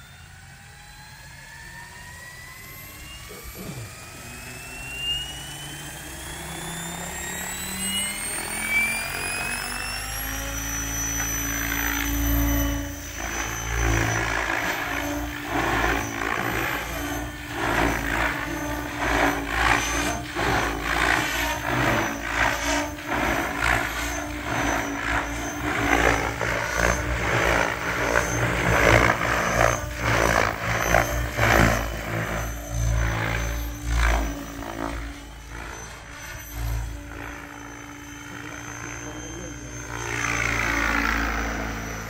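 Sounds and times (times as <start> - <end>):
helicopter rotor passing: 0.0 - 42.0
high-pitched motor whine: 0.0 - 42.0.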